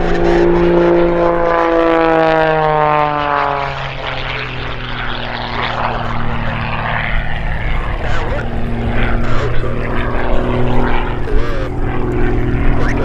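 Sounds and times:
propeller plane engine passing: 0.0 - 13.0.

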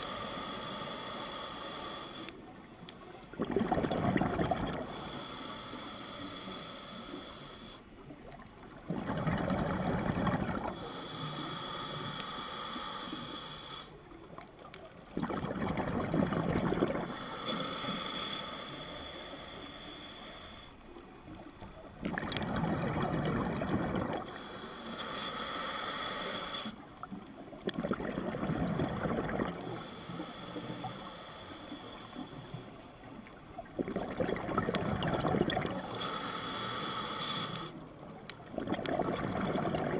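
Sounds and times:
hissing regulator inhale: 0.0 - 2.5, 4.3 - 7.9, 9.6 - 14.0, 16.2 - 20.9, 22.4 - 26.8, 28.6 - 32.8, 34.7 - 37.9
bubbling exhale: 3.3 - 7.8, 8.8 - 14.0, 15.2 - 20.8, 22.0 - 32.7, 33.6 - 37.8, 38.5 - 39.9.

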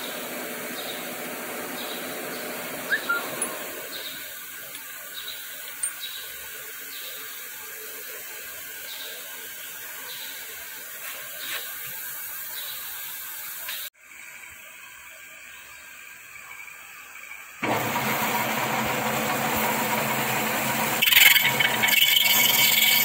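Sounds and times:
lathe running: 0.1 - 4.0, 17.6 - 23.0.

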